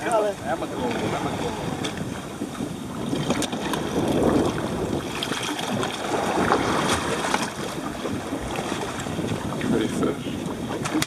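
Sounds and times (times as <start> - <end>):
water sloshing against boat hull: 0.0 - 11.0
wind buffeting microphone: 0.0 - 11.0.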